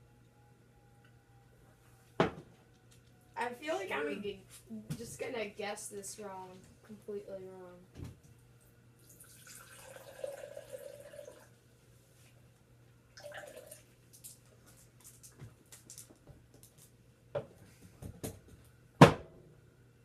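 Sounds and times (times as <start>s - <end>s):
liquid pouring into a glass: 9.0s - 11.5s, 13.2s - 14.0s.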